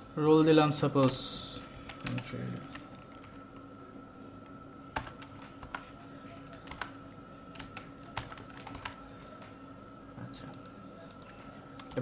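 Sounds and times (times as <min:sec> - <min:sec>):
faint electrical hum: 0:00.0 - 0:12.0
keyboard typing clicks: 0:05.0 - 0:09.6.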